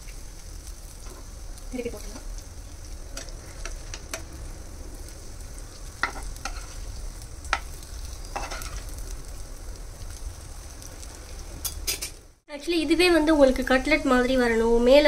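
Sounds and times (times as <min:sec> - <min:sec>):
food sizzling in oil: 0:00.0 - 0:15.0
spatulas scraping pan: 0:06.0 - 0:06.9, 0:07.5 - 0:08.9.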